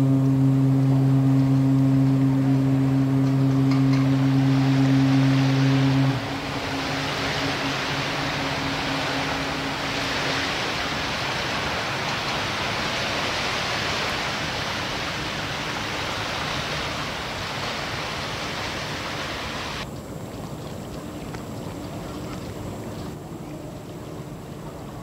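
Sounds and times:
ship's whistle: 0.0s - 19.8s
loud rushing hiss: 4.2s - 19.8s.

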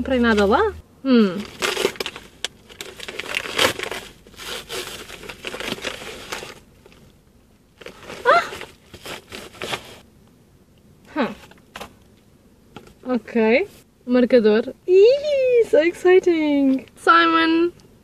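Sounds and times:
paper package tearing and crinkling: 1.4s - 7.1s, 7.8s - 10.0s.

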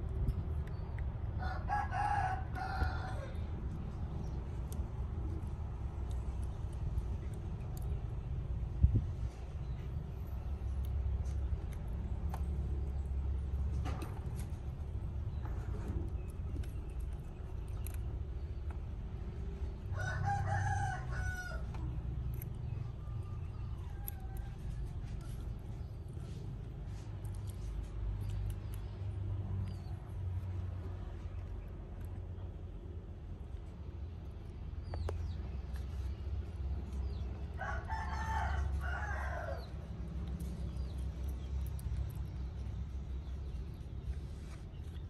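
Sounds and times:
low background rumble: 0.0s - 45.0s
rooster crowing: 1.4s - 3.5s, 19.9s - 21.7s, 37.6s - 39.8s.

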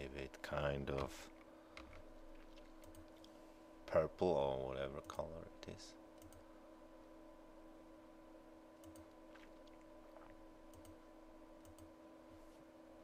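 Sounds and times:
quiet electrical hum: 0.0s - 13.0s
computer mouse clicks: 6.2s - 6.4s, 8.8s - 9.1s, 10.7s - 11.0s, 11.6s - 11.9s.

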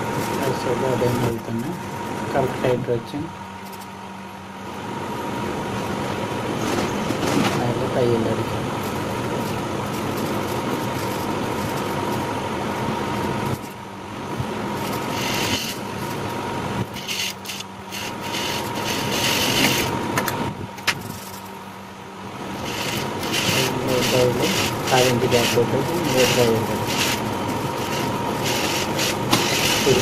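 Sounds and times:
sewing machine motor humming: 14.7s - 16.2s, 16.8s - 19.9s, 22.3s - 30.0s
sewing machine stitching: 22.5s - 27.2s, 27.8s - 30.0s.

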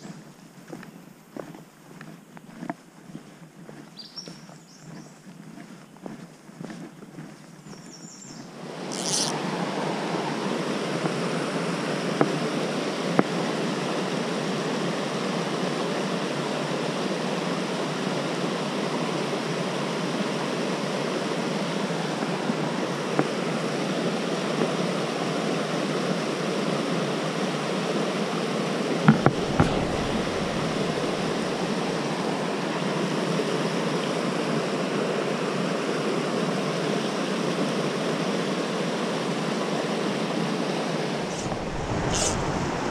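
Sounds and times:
stream rushing over boulders: 8.6s - 20.6s, 28.9s - 34.6s, 39.2s - 42.9s.

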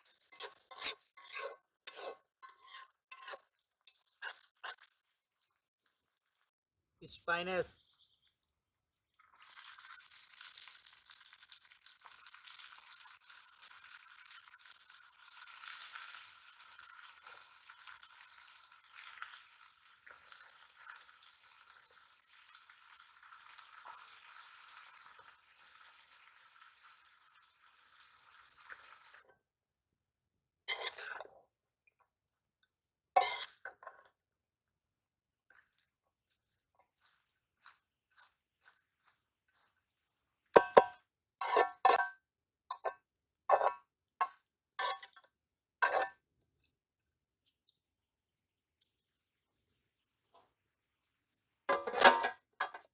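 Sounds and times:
metal spatula scraping a pan: 0.0s - 5.2s, 30.7s - 31.3s, 33.2s - 34.0s, 40.6s - 42.9s, 43.5s - 43.8s, 44.8s - 46.2s, 51.7s - 52.9s
spinach sizzling in hot oil: 0.0s - 6.5s, 9.1s - 29.5s, 30.6s - 31.2s, 33.1s - 33.8s, 35.6s - 46.2s.

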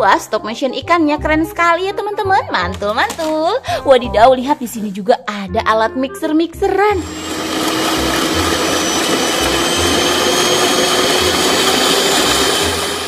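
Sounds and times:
toy mixer motor whirring: 7.0s - 13.0s.

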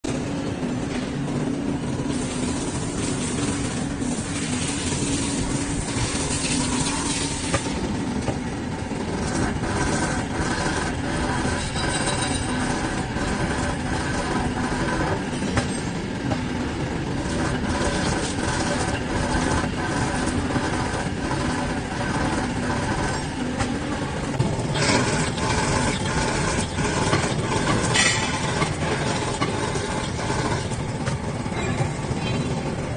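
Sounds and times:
drilling machine cutting metal: 9.0s - 16.1s, 17.1s - 32.6s.

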